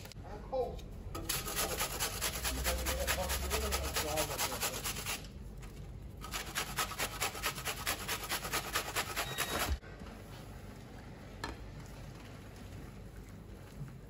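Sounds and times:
onion grated on metal grater: 1.2 - 5.3, 6.2 - 9.8.

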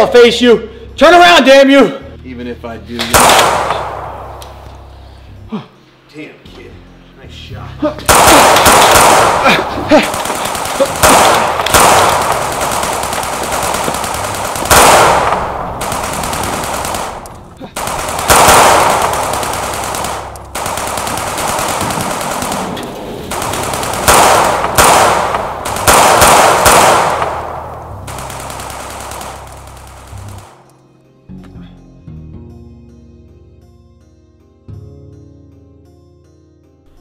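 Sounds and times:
heavy gunfire with echo: 3.0 - 4.4, 8.1 - 30.6.

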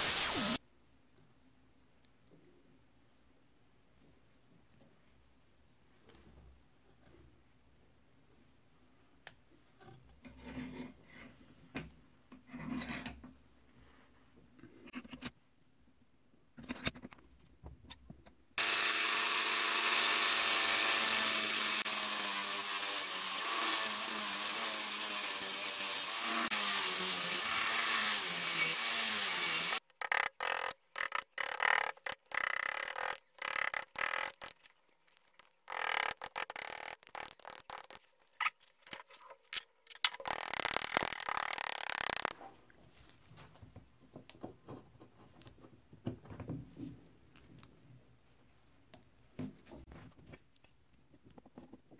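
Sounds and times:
rotary tool whine on wood: 0.0 - 0.6, 18.6 - 34.6, 35.7 - 38.0, 40.2 - 42.3
chisel scraping wood: 35.4 - 38.1.

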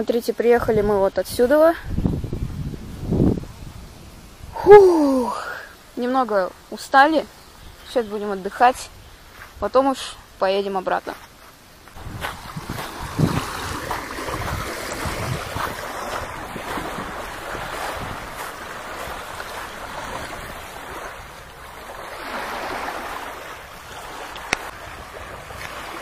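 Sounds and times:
wind buffeting microphone: 0.6 - 5.6, 11.9 - 26.0
small waves lapping shore: 3.5 - 26.0
footsteps on coarse sand: 8.5 - 23.4, 24.1 - 26.0.

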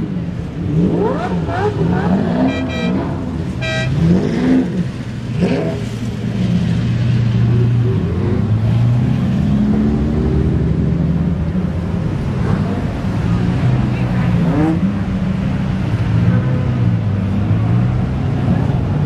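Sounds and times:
car engines idling with throttle blips: 0.0 - 8.4
high-pitched car horn toots: 2.3 - 4.2.

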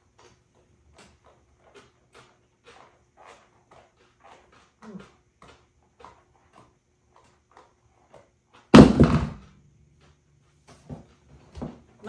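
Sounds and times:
shoe clattering on hard floor: 8.7 - 9.4.

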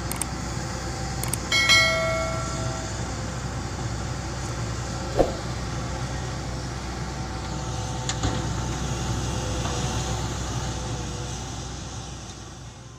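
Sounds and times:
sharp loud bang with ring: 1.6 - 3.0.

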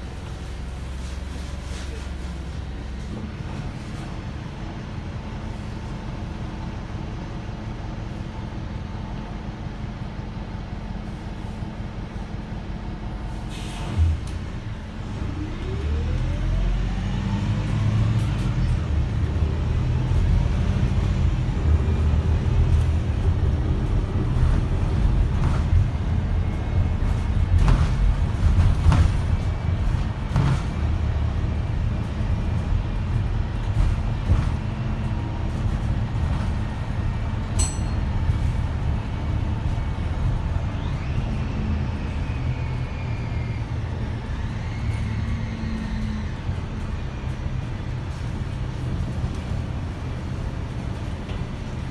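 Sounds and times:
bus engine and road rumble: 0.0 - 51.9
rising engine whine: 12.2 - 28.7, 35.0 - 51.8
bus body knocks and rattles: 22.7 - 38.8.

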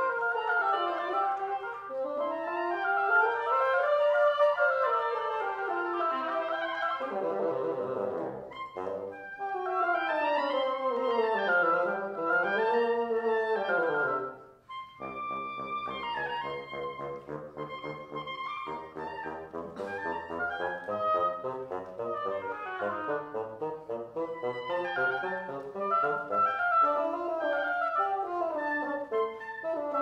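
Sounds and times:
clarinet and wind instrument duet: 0.0 - 30.0.

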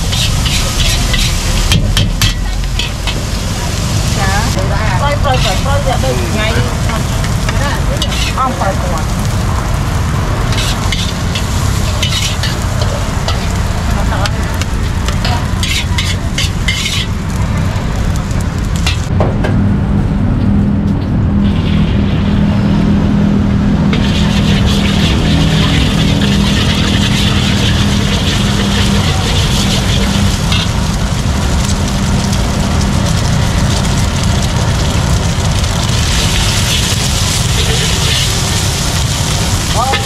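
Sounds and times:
metal spatula scraping a wok: 0.0 - 3.4, 5.2 - 5.9, 7.0 - 8.6, 10.5 - 13.6, 14.2 - 17.3, 18.8 - 19.1, 23.9 - 30.9, 36.1 - 40.0
egg sizzling in a wok: 0.0 - 19.1, 23.9 - 40.0
low rumble: 0.0 - 40.0.

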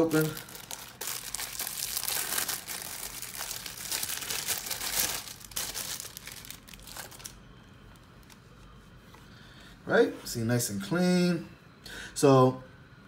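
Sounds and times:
packaging crinkling and tearing: 0.0 - 8.4.

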